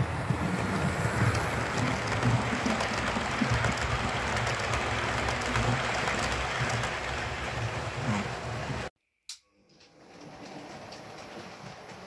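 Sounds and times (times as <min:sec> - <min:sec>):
model train wheels rumbling: 0:00.0 - 0:08.9.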